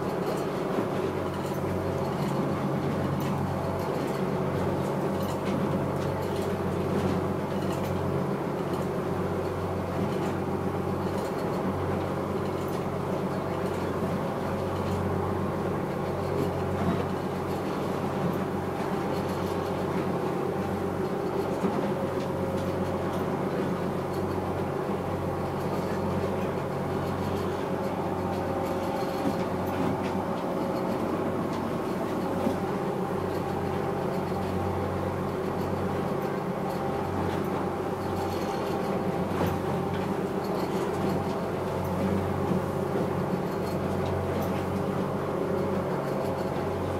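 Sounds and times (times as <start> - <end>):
boat engine droning: 0.0 - 46.9.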